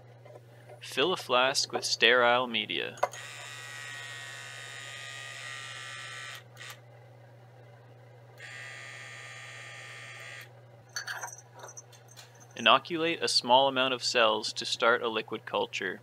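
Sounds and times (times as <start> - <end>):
pipette pump buzzing: 3.0 - 6.8, 8.4 - 10.6.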